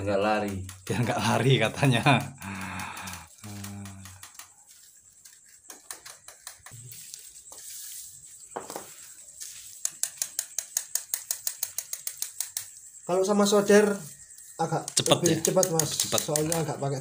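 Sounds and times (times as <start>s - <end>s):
plastic ticking and crackling: 0.0s - 6.8s, 9.8s - 17.0s
soldering iron tapping plastic: 14.9s - 16.8s.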